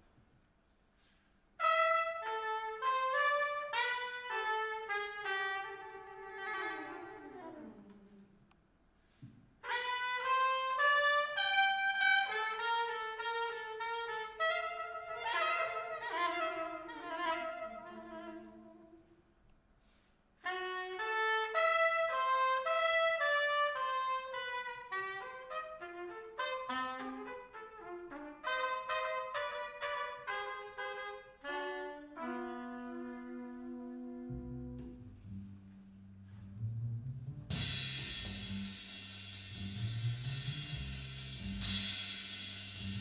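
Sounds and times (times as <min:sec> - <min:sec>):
trumpet melody: 0:01.6 - 0:08.2, 0:09.6 - 0:19.0, 0:20.4 - 0:36.4
soprano saxophone melody: 0:01.6 - 0:08.3, 0:09.6 - 0:19.2, 0:20.4 - 0:36.4.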